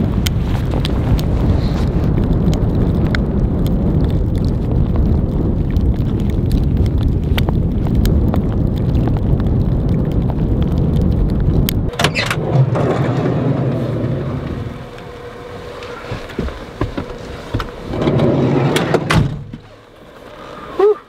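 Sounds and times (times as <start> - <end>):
wind rushing: 0.0 - 19.7
loud rush of noise: 11.9 - 19.5.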